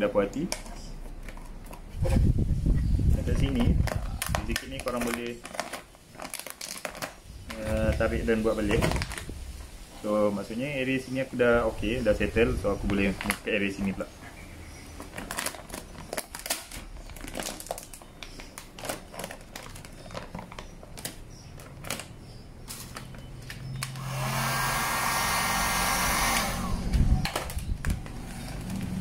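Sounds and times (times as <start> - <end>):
plastic film crinkling: 3.2 - 11.0, 11.8 - 14.1, 14.9 - 24.0
heat gun blowing: 23.8 - 27.3.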